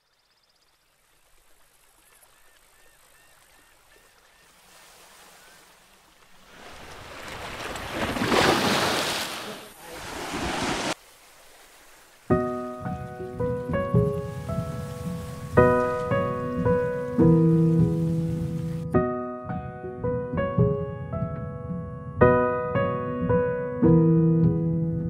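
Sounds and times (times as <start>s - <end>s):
ocean surf breaking on beach: 4.5s - 18.8s.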